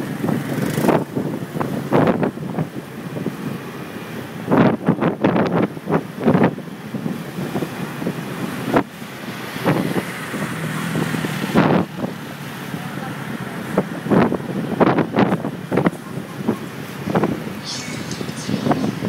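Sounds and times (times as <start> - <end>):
road traffic noise: 0.0 - 19.0
wind buffeting microphone: 13.7 - 17.6.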